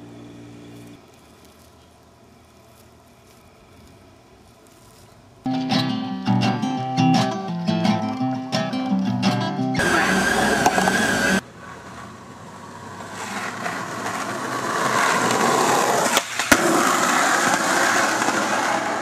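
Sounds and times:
skateboard landing clack: 9.8s - 11.2s, 13.0s - 19.0s
skateboard ollie pop: 9.8s - 12.2s, 12.9s - 19.0s
steady noise with high tone: 9.8s - 14.6s
skateboard wheels rolling on asphalt: 9.8s - 19.0s.

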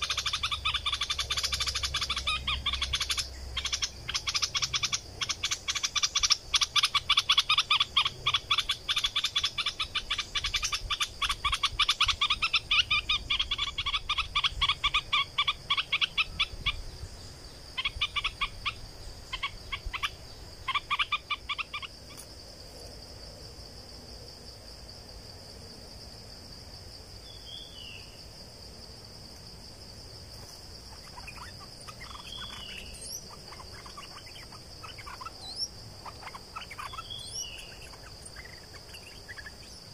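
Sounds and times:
bird chattering: 0.0s - 16.8s, 17.8s - 22.2s, 30.9s - 39.9s.

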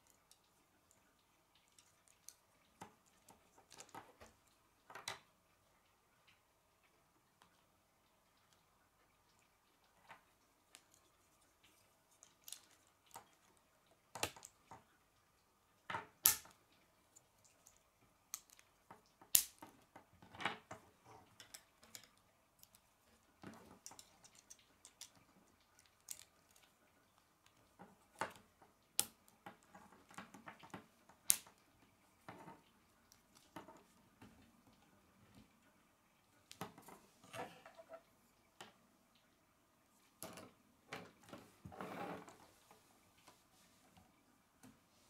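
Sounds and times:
plastic pieces clicking together: 23.8s - 25.2s.

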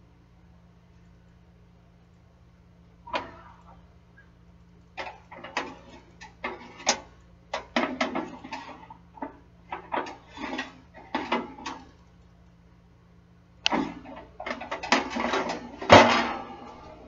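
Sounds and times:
metal wire rack clanking: 13.7s - 17.0s.

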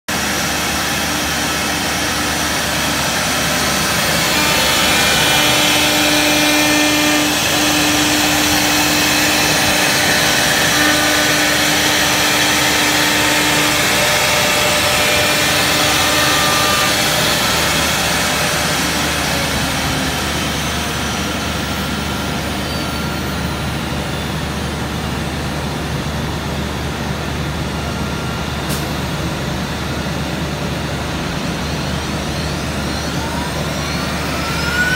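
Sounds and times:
cnc router machining noise: 0.1s - 34.9s
high steady whine: 0.1s - 34.9s.

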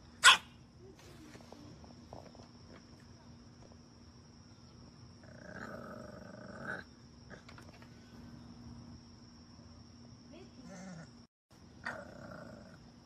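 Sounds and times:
puppy growling call: 11.8s - 12.8s.

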